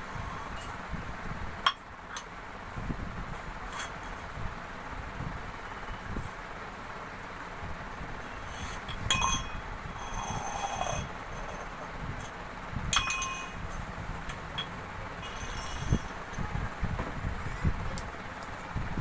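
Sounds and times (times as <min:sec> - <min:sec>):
metal tumbler clinking on stone: 0:08.6 - 0:13.8, 0:14.6 - 0:16.2.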